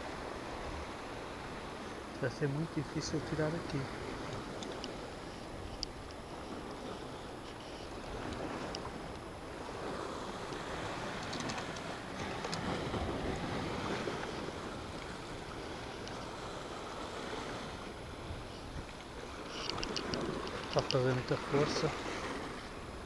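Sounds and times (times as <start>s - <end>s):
surf washing against rocks: 0.0s - 23.0s
light clicks: 4.2s - 6.8s, 10.5s - 12.7s, 19.5s - 21.0s.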